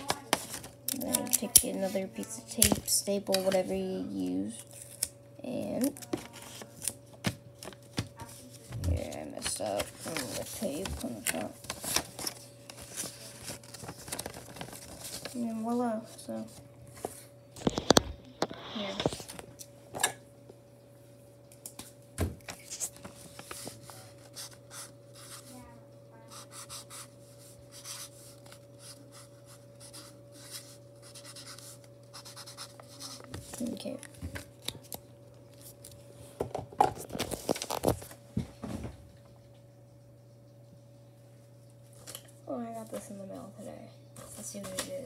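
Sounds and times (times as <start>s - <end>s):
faint steady hum: 0.0s - 45.0s
paper envelope rustling: 5.8s - 19.4s, 22.4s - 25.5s, 37.0s - 38.2s.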